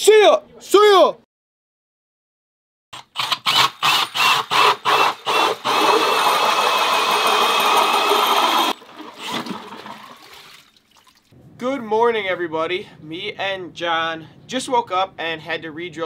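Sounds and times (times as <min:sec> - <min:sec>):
cordless drill whining: 0:03.0 - 0:09.5.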